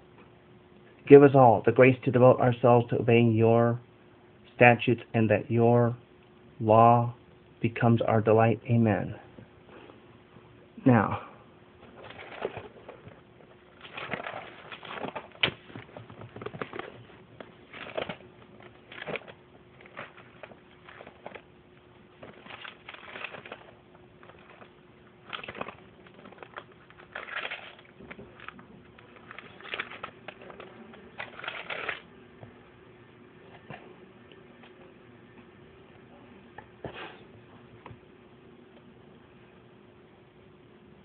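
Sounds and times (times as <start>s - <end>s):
faint steady hum: 0.0s - 41.0s
paper rustling and crinkling: 11.8s - 21.5s, 22.2s - 32.1s.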